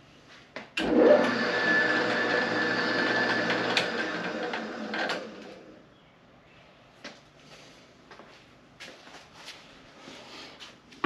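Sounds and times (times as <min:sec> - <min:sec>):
woodworking machine motor whine: 0:00.8 - 0:05.8.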